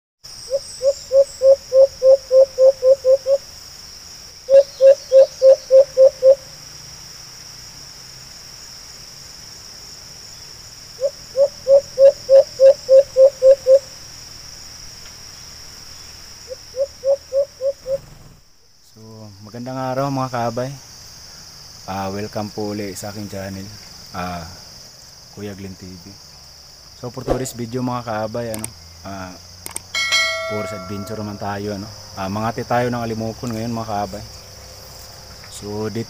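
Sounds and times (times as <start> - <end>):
high-pitched insect drone: 0.3 - 18.3, 18.9 - 36.0
dove hooting: 0.5 - 3.4, 4.5 - 6.5, 11.0 - 13.9, 16.5 - 18.0.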